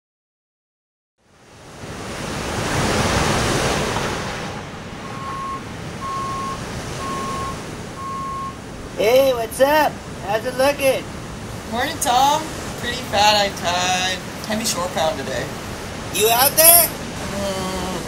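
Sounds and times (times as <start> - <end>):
waves breaking: 1.3 - 18.0
high beep: 5.0 - 8.6.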